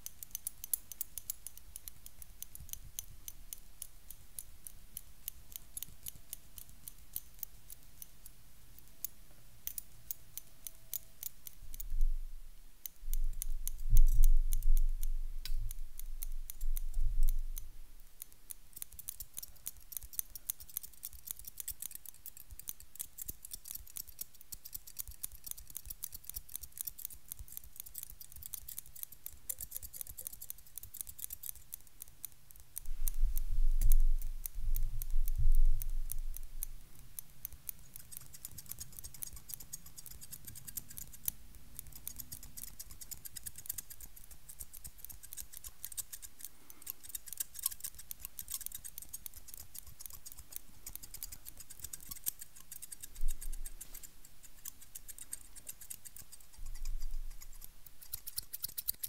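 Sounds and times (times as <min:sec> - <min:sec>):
scissors snipping: 0:00.0 - 0:08.1, 0:08.8 - 0:11.9, 0:12.8 - 0:33.2, 0:33.8 - 0:59.0.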